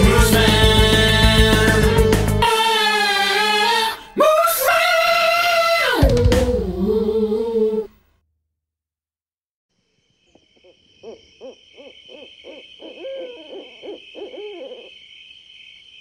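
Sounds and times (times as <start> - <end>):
sung theme song: 0.0 - 7.9
high insect trill: 9.8 - 16.0
rapid hoots: 10.3 - 15.4.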